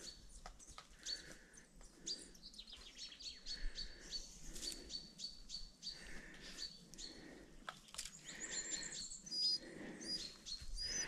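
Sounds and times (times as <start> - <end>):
small birds chirping: 0.0 - 11.0
bird trill: 8.1 - 11.0.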